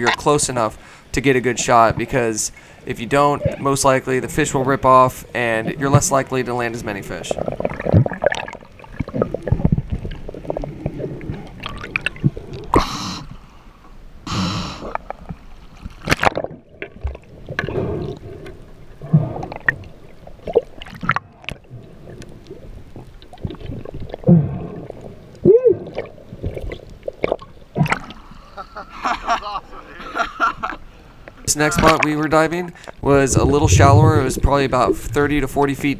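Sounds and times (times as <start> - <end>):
underwater gurgling and sloshing: 1.2 - 28.6, 30.8 - 35.9.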